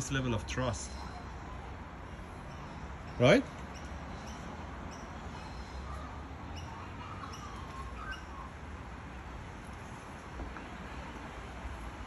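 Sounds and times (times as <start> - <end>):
bird chirping: 0.0 - 8.9.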